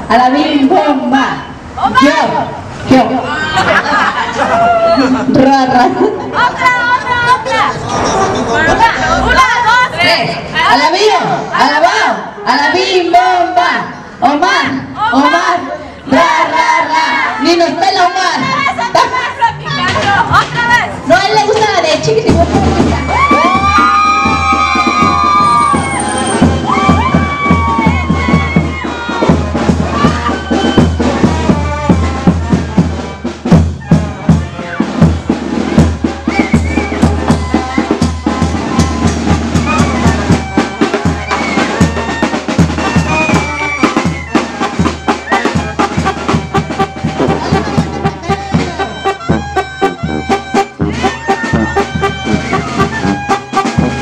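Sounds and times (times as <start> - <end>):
band music: 3.6 - 11.4, 18.2 - 54.0
bass drum beating: 22.2 - 54.0.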